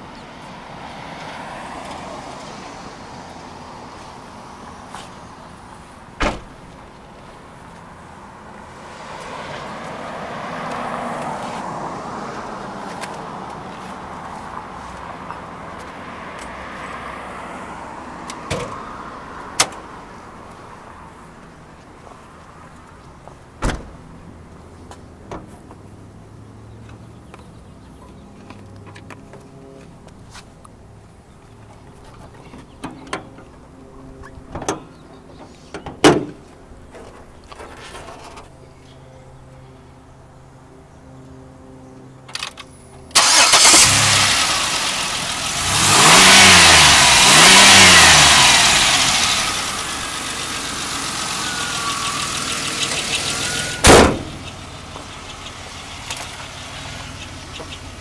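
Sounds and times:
street noise: 0.0 - 58.0
minivan liftgate slamming: 6.2 - 6.6, 53.6 - 54.6.

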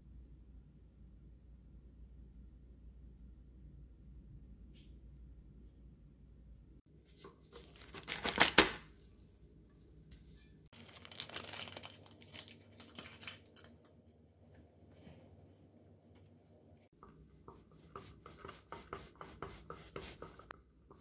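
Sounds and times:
baking paper crackling and rustling: 7.0 - 9.0, 10.7 - 14.2.

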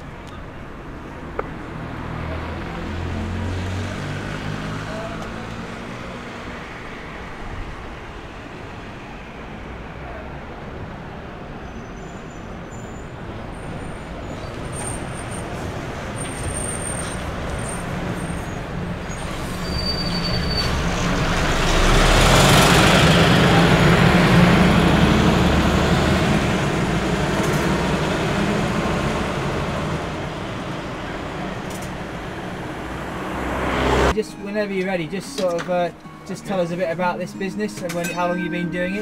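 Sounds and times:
bus driving past: 0.0 - 34.2
faint high squeaks: 16.3 - 21.1.

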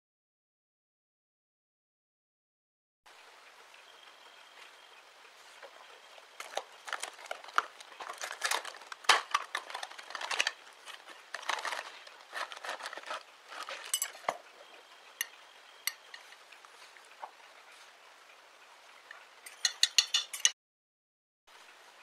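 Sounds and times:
plastic packaging crinkling: 6.4 - 14.4
clinks against china plate: 13.8 - 14.4, 19.5 - 20.6.

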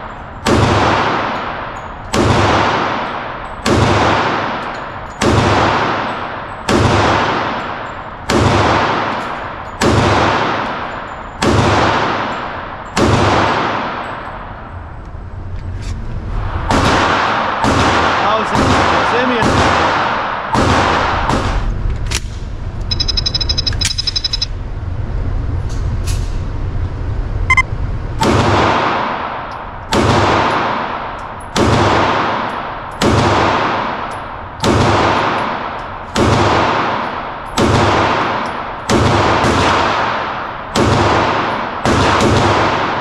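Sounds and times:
pistol shots echoing indoors: 0.0 - 14.7, 16.6 - 21.8, 28.2 - 43.0
electronic beeping: 22.9 - 24.6, 27.5 - 27.7.

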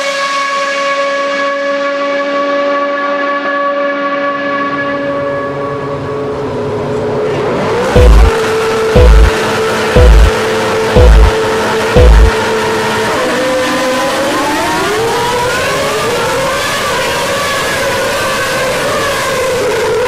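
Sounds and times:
low steady tone: 8.0 - 8.3, 9.0 - 9.3, 10.0 - 10.3, 11.0 - 11.3, 12.0 - 12.4
deep thumps: 8.0 - 8.4, 9.0 - 9.3, 10.0 - 10.3, 11.0 - 11.4, 12.0 - 12.4
race car engine note: 8.0 - 13.2.

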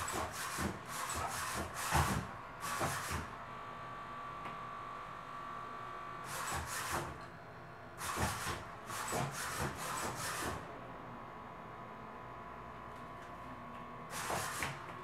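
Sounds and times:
robot servo motors whirring: 8.0 - 10.5.

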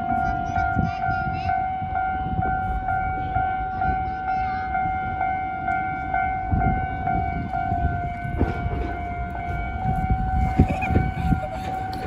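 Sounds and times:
level-crossing warning bell: 0.0 - 12.0
low road and rail rumble: 0.0 - 12.0.

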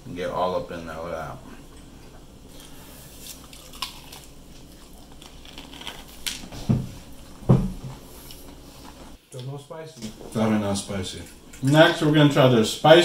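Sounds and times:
quiet chewing: 1.5 - 10.1.

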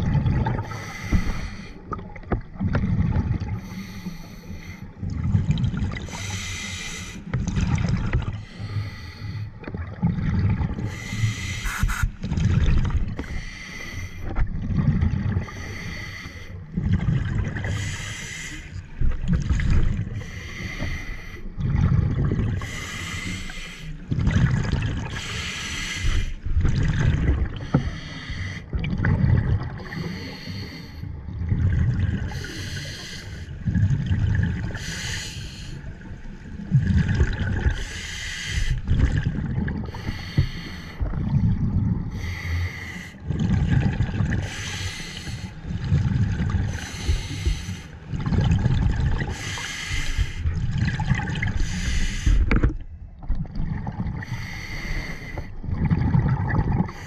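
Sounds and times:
exhaled bubbles rushing underwater: 0.0 - 13.6, 14.2 - 57.0
regulator hissing inhale: 0.7 - 1.8, 3.6 - 4.9, 6.1 - 7.2, 8.4 - 9.5, 10.9 - 12.1, 13.2 - 14.3, 17.7 - 18.8, 20.2 - 21.5, 22.6 - 24.0, 25.2 - 26.4, 27.6 - 28.7, 29.9 - 31.1, 32.3 - 33.5, 34.7 - 35.8, 37.8 - 38.8, 39.9 - 41.0, 42.1 - 43.2, 44.4 - 45.6, 46.7 - 48.0, 49.3 - 50.5, 51.6 - 52.6, 54.2 - 55.6.

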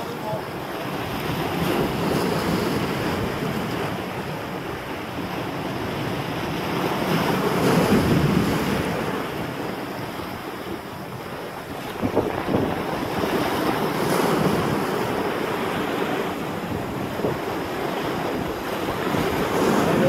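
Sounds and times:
surf washing against rocks: 0.0 - 20.0
wind on microphone: 0.0 - 20.0.

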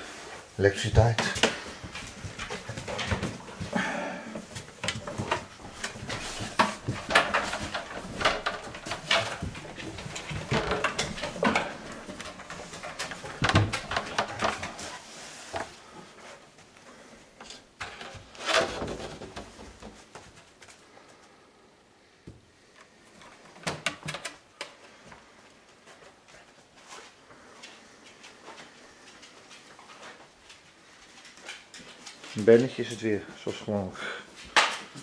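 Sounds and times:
dog paws on wooden stairs: 1.0 - 16.8, 23.1 - 33.5.

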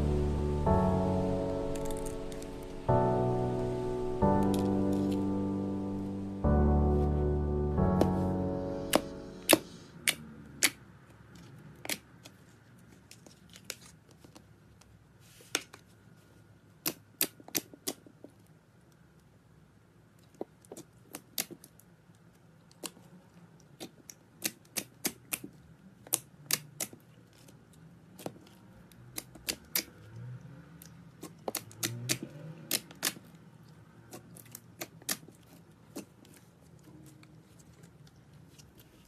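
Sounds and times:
slime clicking and popping: 31.2 - 33.2.

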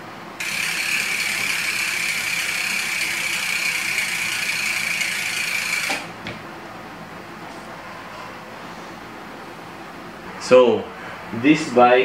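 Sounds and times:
bike freehub buzzing: 0.0 - 6.3.

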